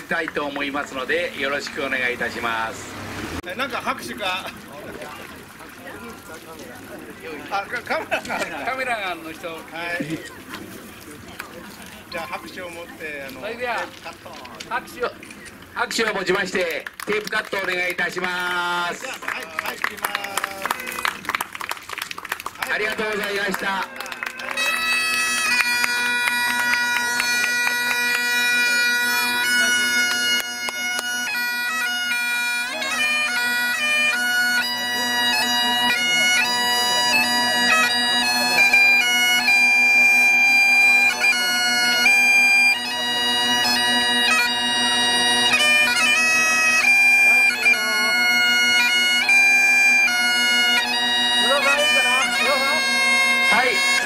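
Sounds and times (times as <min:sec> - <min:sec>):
bagpipe drone: 0:00.0 - 0:04.6, 0:22.6 - 0:54.0
bagpipes playing a tune: 0:00.0 - 0:10.2, 0:22.6 - 0:54.0.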